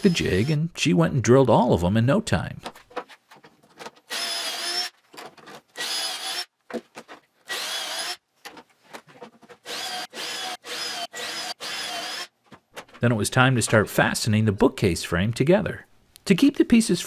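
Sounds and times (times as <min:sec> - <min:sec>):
cordless drill whine: 0:04.1 - 0:04.9, 0:05.8 - 0:06.5, 0:07.5 - 0:08.2, 0:09.7 - 0:12.3.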